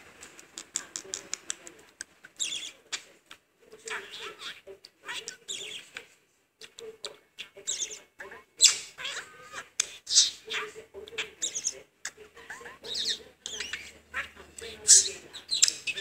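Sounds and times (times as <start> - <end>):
budgerigar chattering: 2.4 - 3.0, 3.9 - 5.9, 7.4 - 11.8, 12.4 - 16.0.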